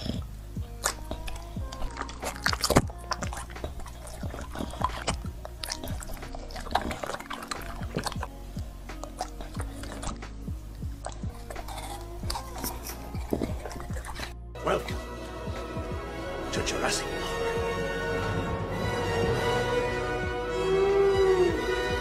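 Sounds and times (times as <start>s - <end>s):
dog chewing wet fruit: 0.0s - 15.7s
quiet background music: 0.0s - 22.0s.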